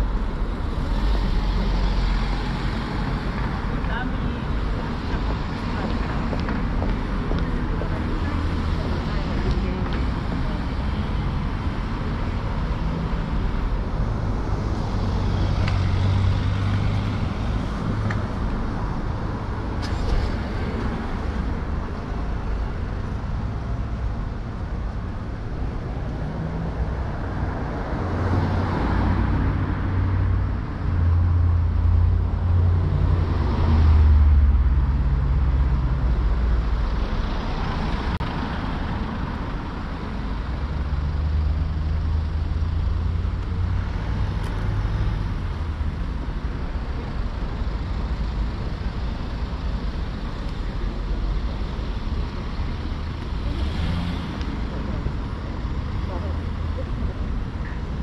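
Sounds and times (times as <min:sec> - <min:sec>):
low rumble of traffic: 0:00.0 - 0:58.0
vehicles passing by: 0:00.0 - 0:58.0.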